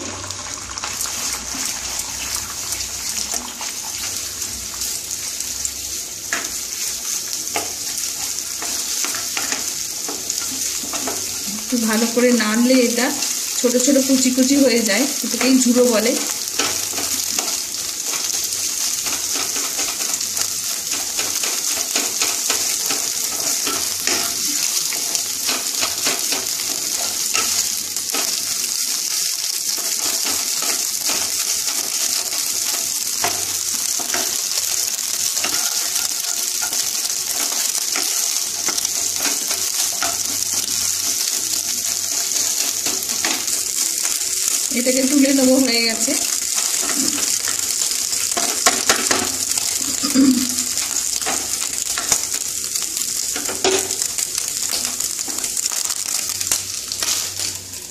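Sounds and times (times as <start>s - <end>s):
eggs sizzling in hot oil: 0.0s - 57.9s
spatula scraping and tapping a pan: 6.3s - 11.5s, 15.3s - 28.6s, 29.6s - 44.6s, 46.1s - 52.4s, 53.2s - 57.3s.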